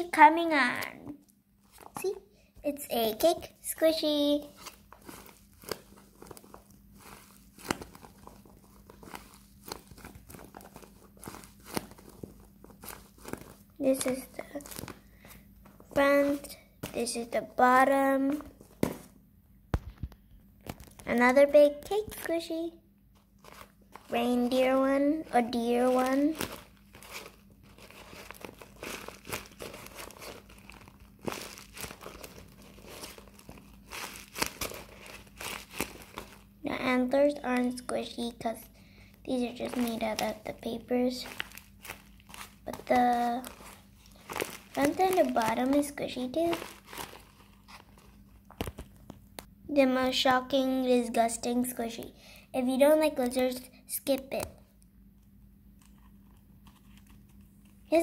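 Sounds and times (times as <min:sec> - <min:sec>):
paper crinkling and crackling: 0:03.2 - 0:17.4, 0:19.9 - 0:22.6, 0:23.2 - 0:38.5, 0:39.3 - 0:49.5, 0:55.8 - 0:58.0.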